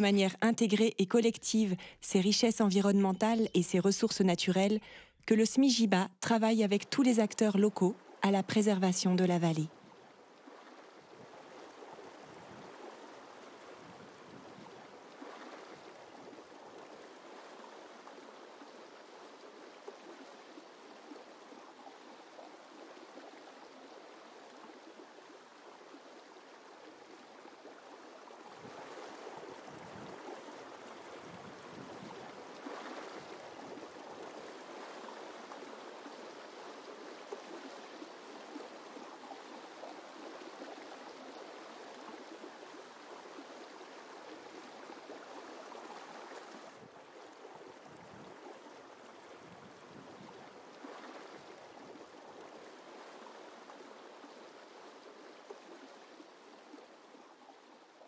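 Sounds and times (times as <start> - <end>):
river water flowing: 0.0 - 58.0.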